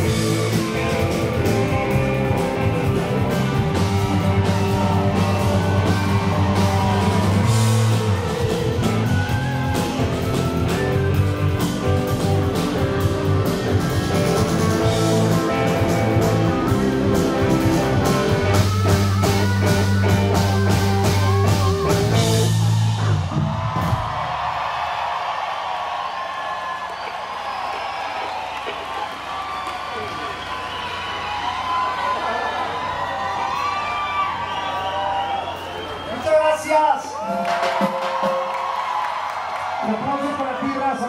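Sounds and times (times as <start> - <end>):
live rock band playing: 0.0 - 24.1
crowd cheering: 0.0 - 41.0.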